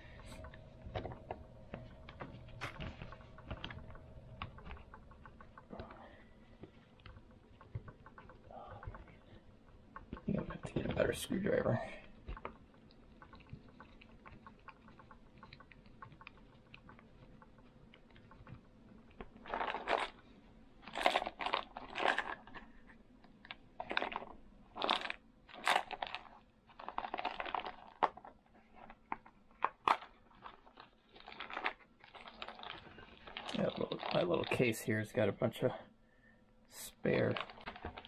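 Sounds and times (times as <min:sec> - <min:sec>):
plastic case with parts clattering: 0:19.4 - 0:20.2, 0:20.8 - 0:22.7, 0:23.8 - 0:34.9.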